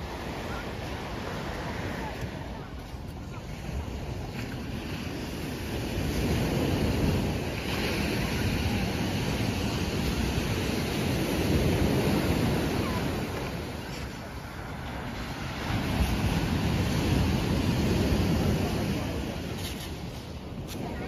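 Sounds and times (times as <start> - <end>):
surf breaking on shore: 0.0 - 21.0
wind buffeting microphone: 0.0 - 21.0.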